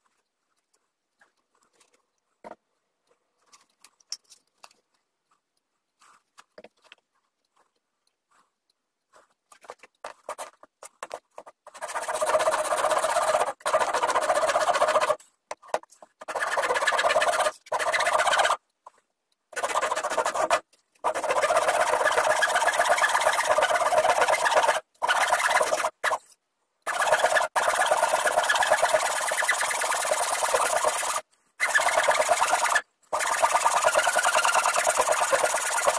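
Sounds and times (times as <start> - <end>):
light scratches and taps: 0.0 - 11.7
handsaw cutting wood: 11.6 - 15.2, 16.2 - 18.6, 19.5 - 26.3, 26.9 - 35.9.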